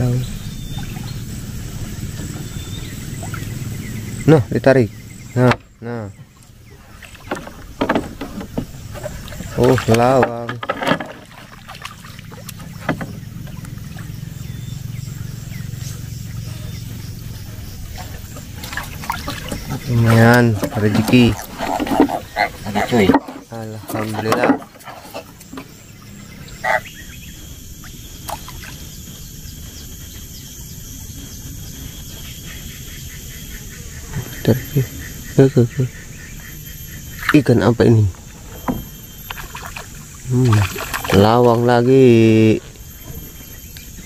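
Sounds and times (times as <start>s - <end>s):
fish splashing in water: 0.0s - 4.3s, 6.4s - 29.6s, 38.2s - 41.8s
low rumble: 0.0s - 9.9s
steady low rumble: 0.0s - 10.6s, 11.2s - 44.0s
insects droning: 0.0s - 44.0s.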